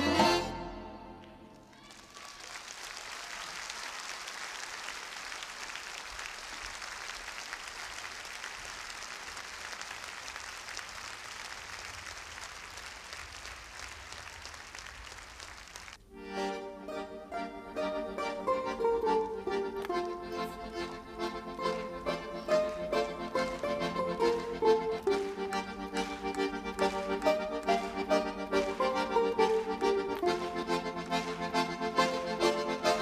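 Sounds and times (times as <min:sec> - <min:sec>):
music: 0:00.0 - 0:01.6, 0:16.2 - 0:33.0
audience applauding: 0:01.5 - 0:16.1, 0:17.8 - 0:33.0.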